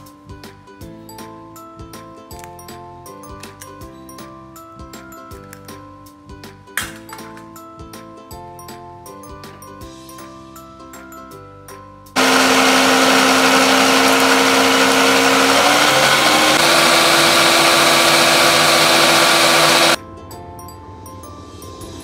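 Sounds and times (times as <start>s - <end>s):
food processor motor running: 12.2s - 20.0s.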